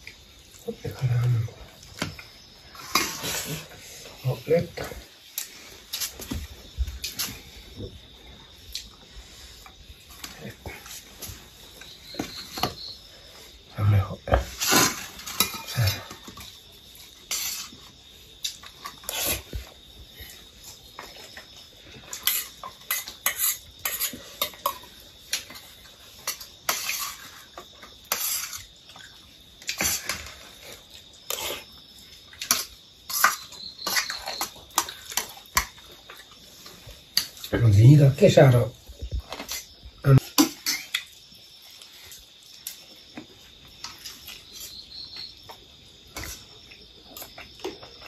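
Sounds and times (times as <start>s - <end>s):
steel dishes clinking and scraping: 14.6s - 16.1s.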